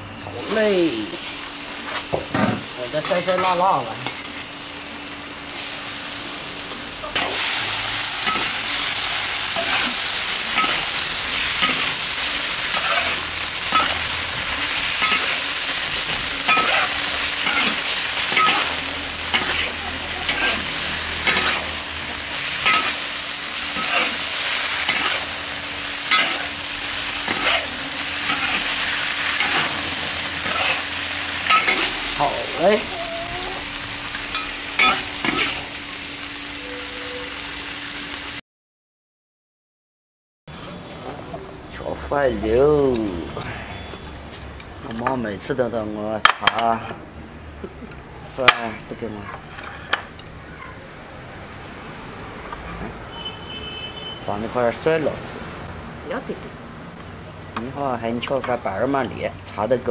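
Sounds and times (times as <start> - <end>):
tofu sizzling in a wok: 4.2 - 38.4
spatula scraping a wok: 7.2 - 32.2, 49.4 - 50.2.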